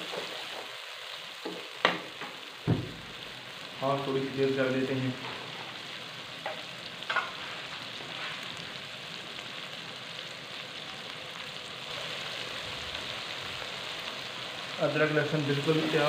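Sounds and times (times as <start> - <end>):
onions sizzling in a pan: 0.0 - 16.0
short knock: 2.7 - 3.0.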